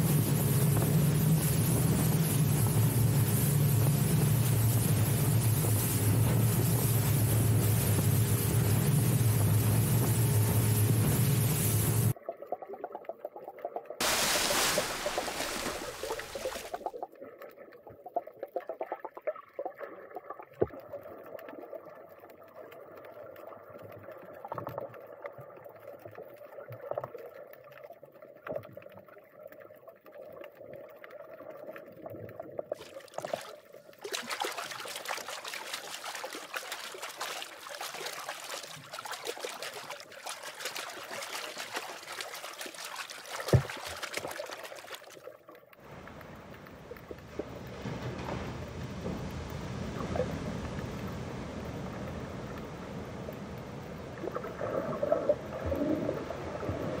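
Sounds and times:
fizzing hiss of bubbles: 0.0s - 12.2s, 14.0s - 17.2s, 30.0s - 57.0s
muffled underwater movement: 0.0s - 57.0s.

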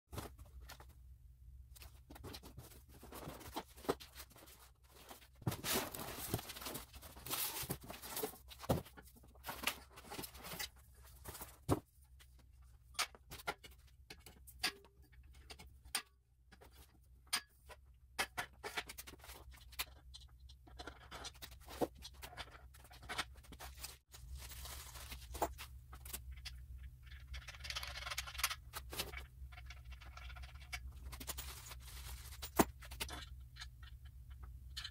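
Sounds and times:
cardboard flaps rustling: 1.8s - 10.4s.

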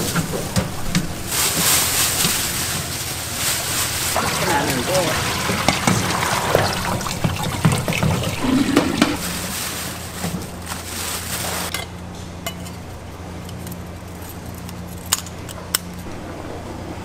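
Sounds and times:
water pouring into a pot: 4.0s - 9.5s.

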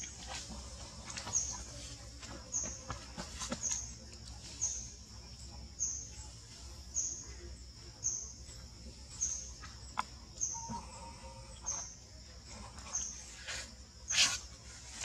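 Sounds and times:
faint steady background noise: 0.0s - 15.0s
bird chirping: 1.1s - 14.4s
low bird call: 10.4s - 11.9s.

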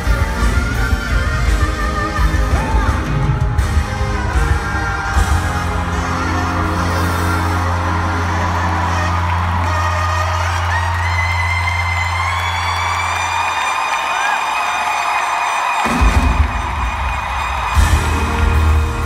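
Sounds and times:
person singing: 0.0s - 10.3s
live pop-rock band: 0.0s - 12.2s, 15.8s - 19.0s.

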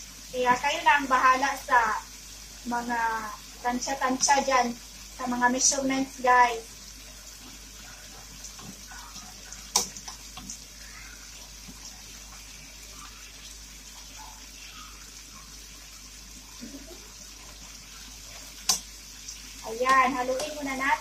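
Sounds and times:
meat and onions sizzling in pan: 0.0s - 21.0s
spatula tapping a pan: 18.6s - 18.9s.

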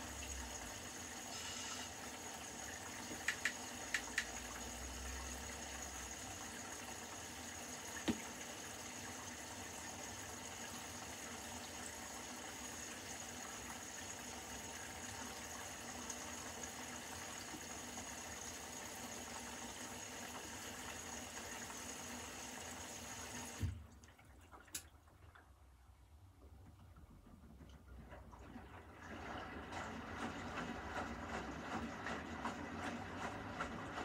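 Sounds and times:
washing machine filling with water: 0.0s - 34.0s
washing machine thump: 8.0s - 8.4s.

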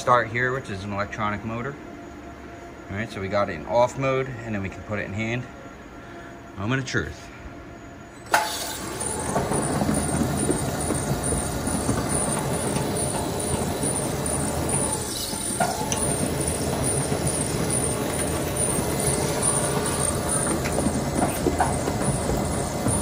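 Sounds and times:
belt conveyor running: 8.3s - 23.0s.

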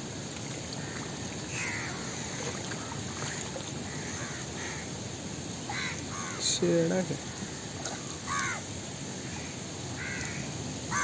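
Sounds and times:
steady background hiss: 0.0s - 11.0s
birds calling: 5.7s - 8.6s, 9.2s - 11.0s.

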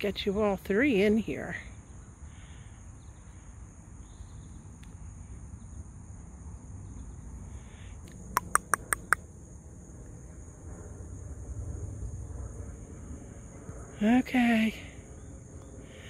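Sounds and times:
insects droning: 0.0s - 16.0s
sharp clicks: 8.1s - 9.2s.

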